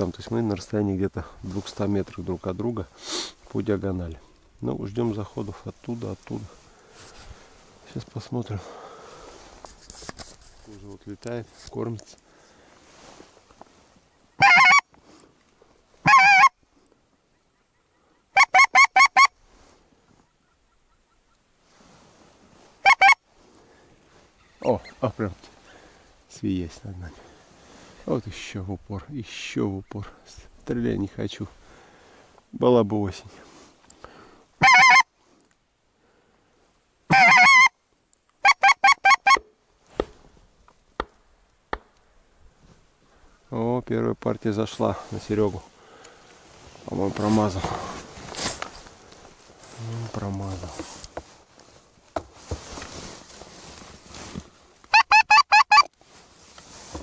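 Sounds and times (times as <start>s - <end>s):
goose call honks: 14.4s - 14.8s, 16.0s - 16.6s, 18.3s - 19.4s, 22.8s - 23.2s, 34.6s - 35.1s, 37.1s - 37.7s, 38.4s - 39.4s, 54.9s - 55.9s
person speaking: 46.8s - 48.1s, 49.7s - 51.0s.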